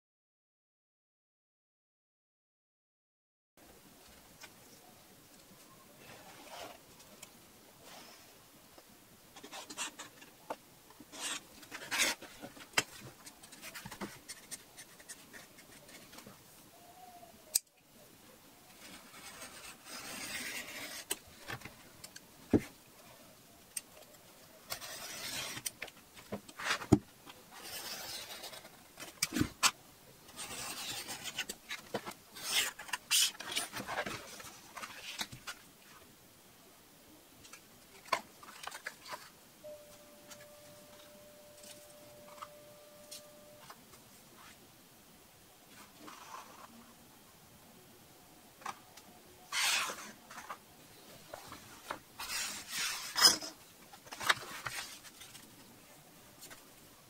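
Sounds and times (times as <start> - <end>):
paper rustling: 11.1 - 16.4, 51.2 - 55.6
pen scratching along ruler: 18.9 - 21.1, 24.7 - 25.6.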